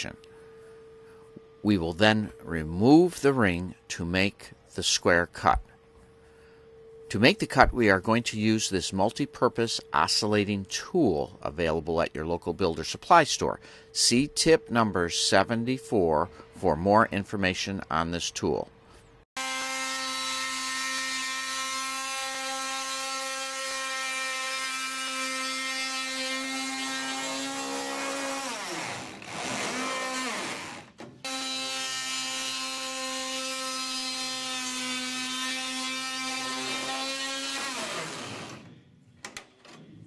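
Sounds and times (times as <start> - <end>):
oscillating multi-tool cutting metal: 19.4 - 38.8.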